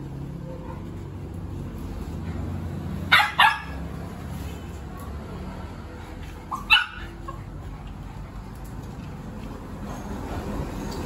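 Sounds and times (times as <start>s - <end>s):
dog yipping: 3.1s - 3.8s, 6.5s - 7.4s.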